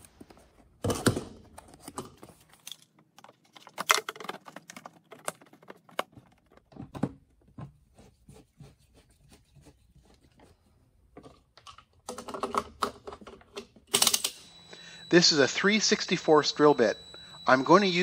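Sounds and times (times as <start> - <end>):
plastic parts clicking and knocking: 0.8 - 7.8, 11.1 - 14.3.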